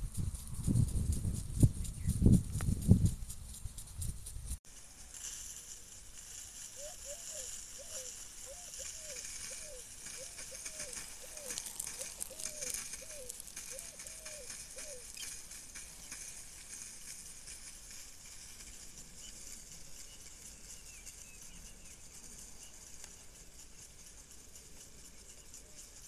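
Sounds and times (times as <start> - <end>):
steady high hiss: 1.4 - 26.0
bird hooting: 6.8 - 15.3.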